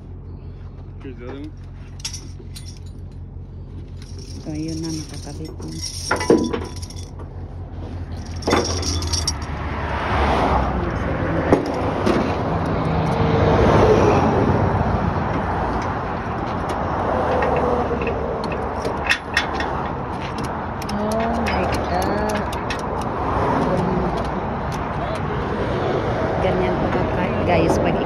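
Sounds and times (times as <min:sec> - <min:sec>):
low engine hum: 0:00.0 - 0:28.0
road traffic passing: 0:00.0 - 0:28.0
metal clicks of tie-down hardware: 0:15.7 - 0:25.3.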